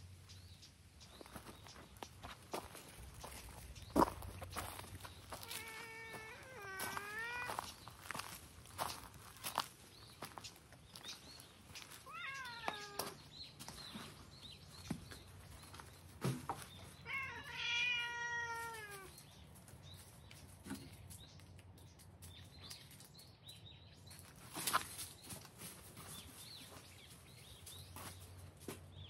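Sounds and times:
cat meowing: 5.4 - 7.7, 12.0 - 13.2, 17.0 - 19.1.

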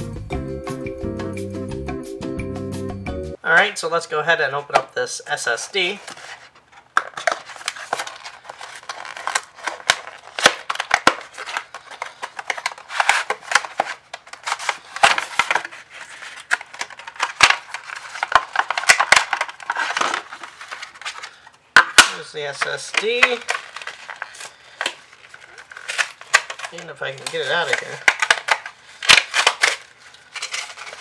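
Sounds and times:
cardboard and paper rustling: 5.3 - 31.0.

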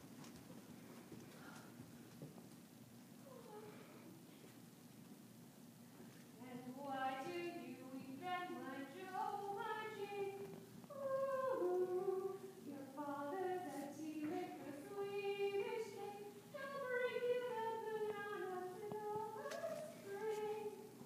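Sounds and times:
woman singing slow melody: 6.4 - 20.9.

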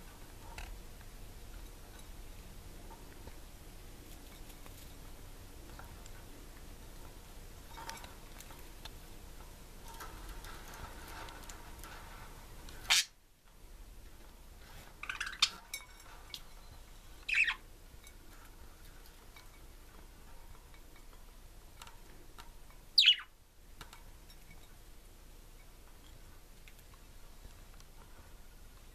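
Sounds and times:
budgerigars chirping: 17.3 - 17.6, 23.0 - 23.3.

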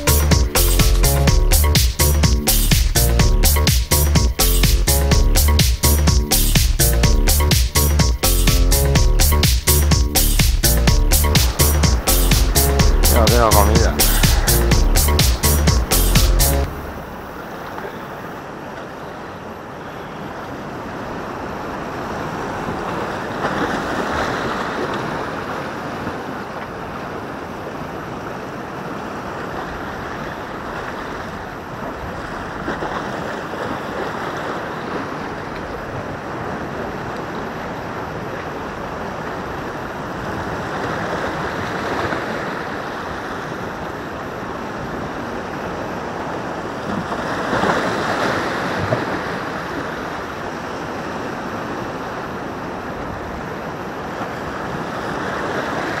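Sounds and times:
sea waves on rocky shore: 16.7 - 56.0.

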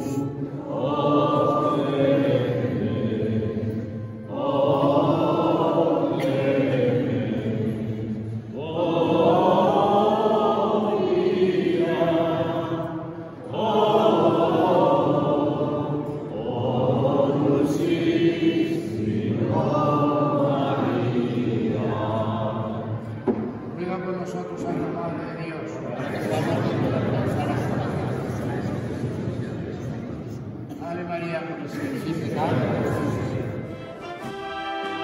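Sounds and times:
group singing a hymn: 0.0 - 23.8, 25.9 - 29.9, 31.7 - 35.0.

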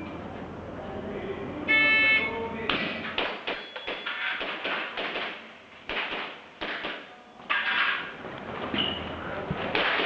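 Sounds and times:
airsoft pistol shots: 2.7 - 7.1.

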